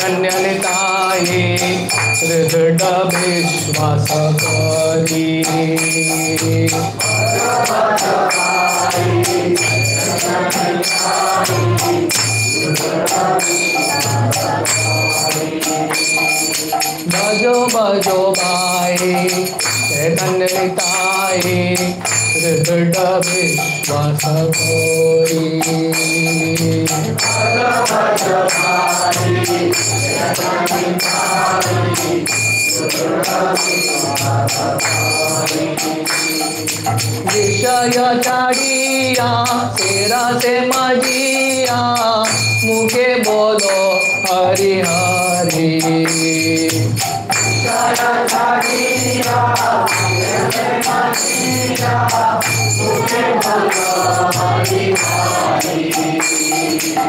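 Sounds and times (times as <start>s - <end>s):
leader singing: 0.0s - 16.1s, 37.2s - 46.8s, 47.6s - 56.7s
group of voices singing: 0.0s - 57.0s
hand cymbals clashing: 0.0s - 57.0s
wavering melody: 0.0s - 57.0s.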